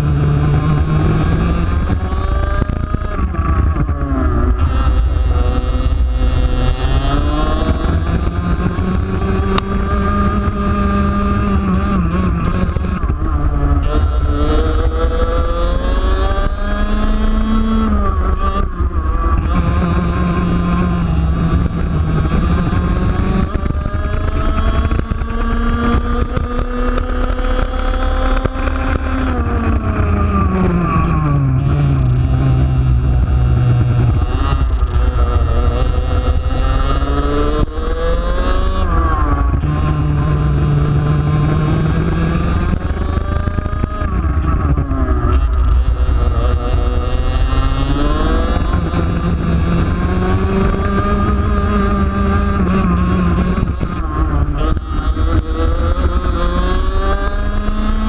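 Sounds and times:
kart engine revving: 0.0 - 58.0.

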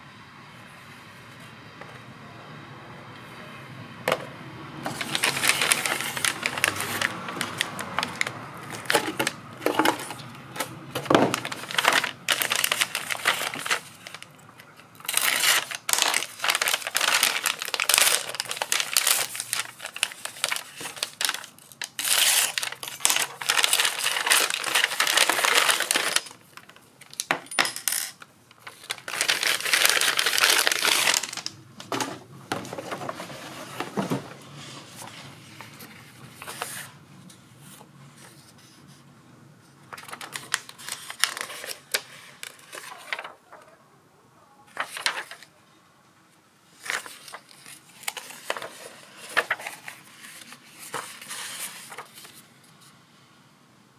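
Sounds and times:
paper packaging rustling: 4.9 - 27.7, 28.5 - 37.0, 39.9 - 43.8, 44.7 - 45.5, 46.8 - 52.5.

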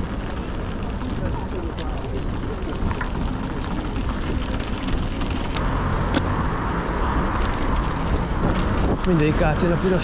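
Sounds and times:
bicycle rolling and wind rumble: 0.0 - 10.0.

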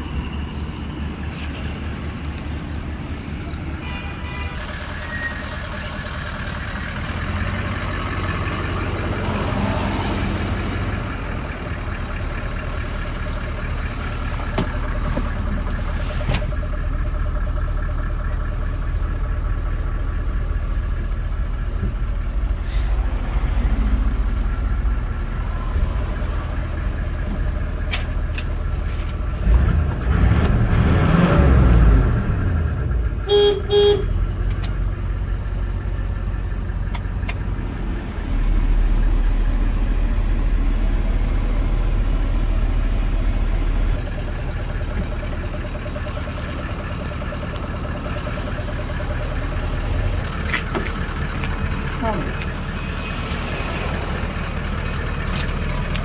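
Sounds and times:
diesel engine idling: 0.0 - 56.0
car horn toots: 3.8 - 5.3, 33.2 - 34.2.

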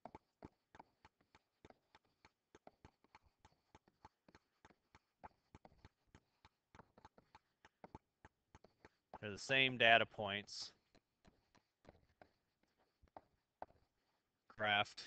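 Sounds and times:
stylus tapping on tablet screen: 10.8 - 14.1.

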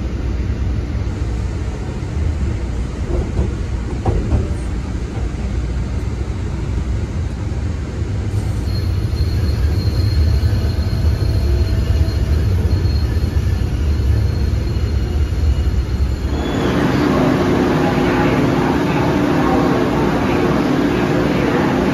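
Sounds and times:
light rail car rumble: 0.0 - 21.9
faint high wheel squeal: 8.4 - 17.5.

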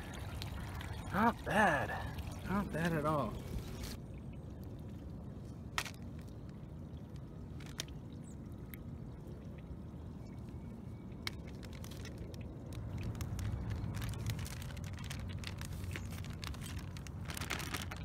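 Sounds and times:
steady low rumble: 0.0 - 18.0
snail shells clicking together: 11.2 - 17.3.

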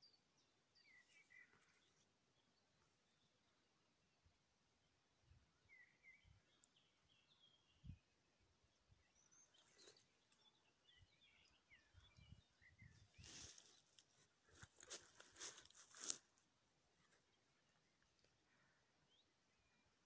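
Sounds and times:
faint bird chirps: 0.0 - 4.2, 4.8 - 14.7
rustling crunches: 13.2 - 16.4.

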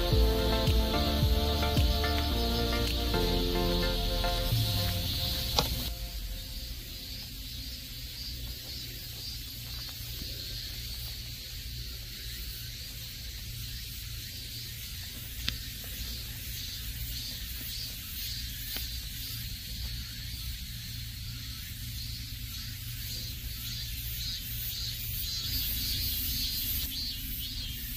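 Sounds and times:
low rumble: 0.0 - 8.0
steady high hiss: 0.0 - 27.9
sharp tick: 1.8 - 3.2.

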